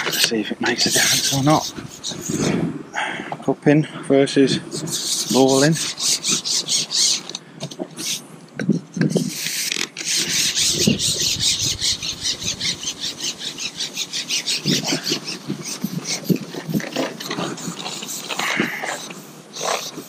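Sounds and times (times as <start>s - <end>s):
fishing pole sliding with rasping rattle: 0.0s - 2.5s, 9.2s - 20.0s.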